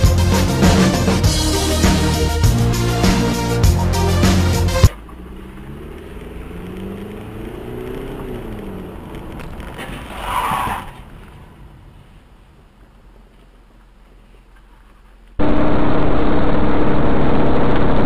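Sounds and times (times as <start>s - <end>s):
car engine accelerating: 0.0s - 9.8s, 15.4s - 18.0s.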